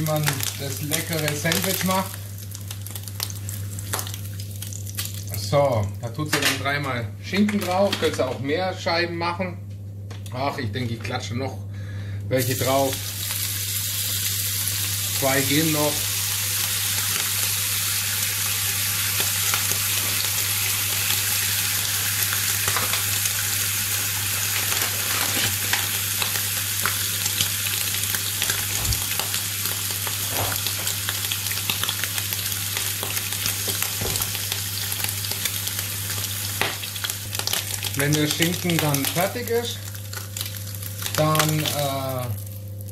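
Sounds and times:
ham sizzling in a pan: 0.0 - 5.4, 12.4 - 42.9
small pops and crackles: 0.1 - 5.2.

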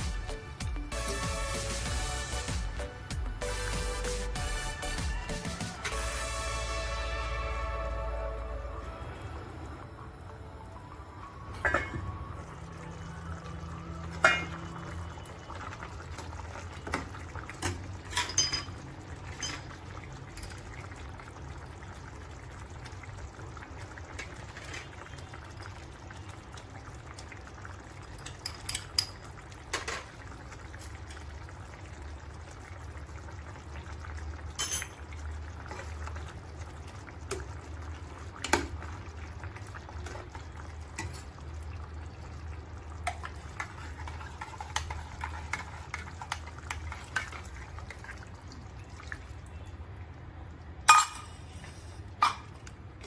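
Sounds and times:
ladle clinking on metal pan: 11.6 - 12.0
ladle stirring thick curry: 43.1 - 48.4.

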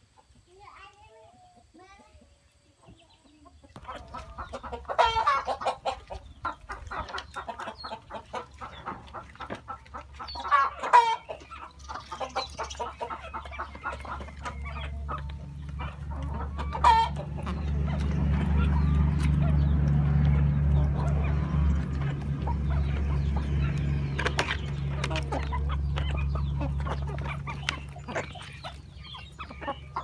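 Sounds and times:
chickens clucking: 0.0 - 30.0
chicken squawking calls: 3.9 - 9.3, 9.9 - 17.9
beaks pecking in plastic tray: 17.3 - 30.0.

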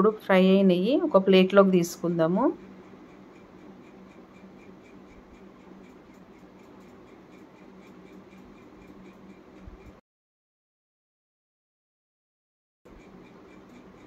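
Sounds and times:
steady low hum: 0.0 - 10.0, 12.9 - 14.0.

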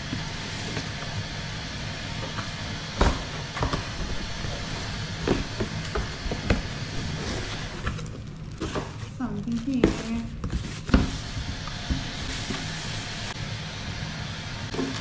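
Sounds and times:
low hum: 1.6 - 9.6.

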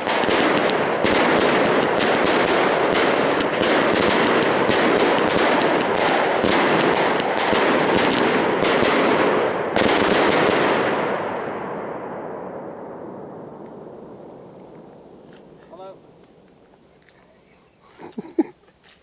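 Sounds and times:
firework cake bangs: 0.0 - 11.3
rumbling echo: 0.0 - 16.5.

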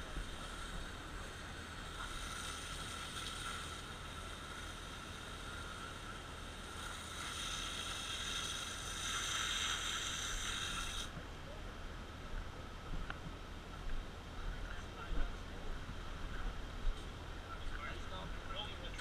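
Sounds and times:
water spraying from hose nozzle: 0.0 - 11.1.

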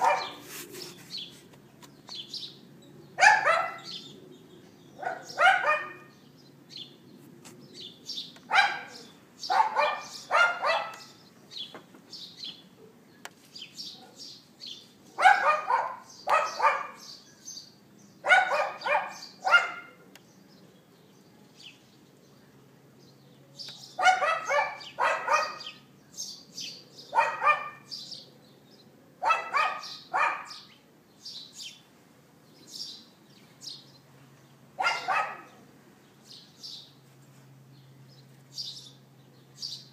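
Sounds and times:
dog yapping: 0.0 - 0.4, 3.2 - 3.9, 5.0 - 6.1, 8.5 - 11.2, 15.2 - 17.0, 18.2 - 20.0, 24.0 - 25.8, 27.1 - 27.9, 29.2 - 30.6, 34.8 - 35.5
small birds chirping: 0.0 - 39.9.

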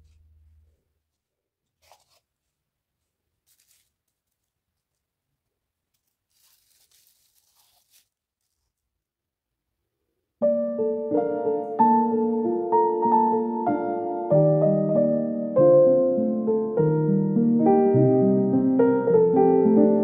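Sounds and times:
plastic film crinkling: 1.7 - 2.5, 3.4 - 5.1, 5.9 - 8.8.

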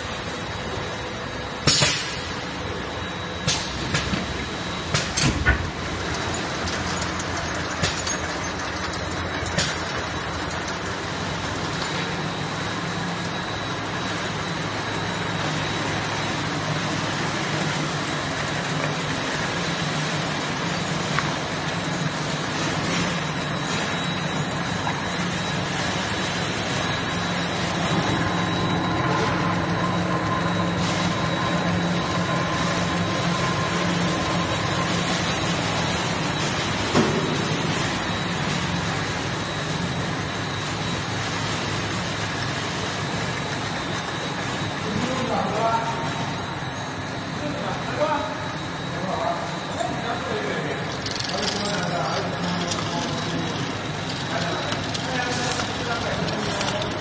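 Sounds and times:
faint machine whine: 0.0 - 57.0
steady machine hum: 0.0 - 57.0
sharp machine clacks: 1.6 - 2.2, 4.8 - 11.0, 50.9 - 57.0.

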